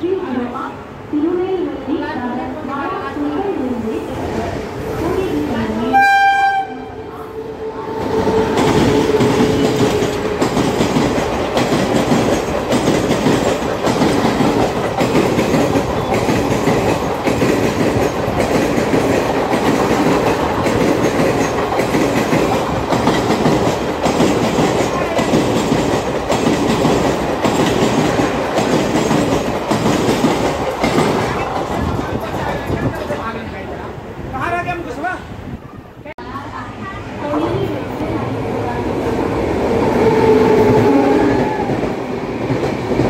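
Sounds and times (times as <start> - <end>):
train horn: 5.8 - 9.8
train wheels clattering over rail joints: 8.3 - 33.2.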